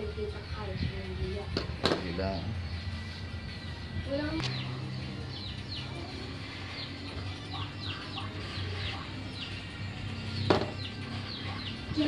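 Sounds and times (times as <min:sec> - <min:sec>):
small bird chirping: 0:02.4 - 0:12.0.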